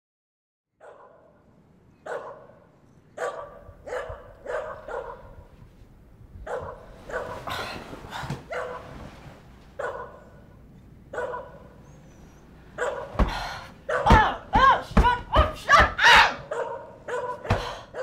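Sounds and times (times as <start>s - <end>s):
low steady hum: 1.2s - 18.0s
dog barking sharply: 2.1s - 2.6s, 3.2s - 5.3s, 6.5s - 7.4s, 9.8s - 10.3s, 11.1s - 11.7s, 12.8s - 13.2s, 13.9s - 14.3s, 15.7s - 18.0s.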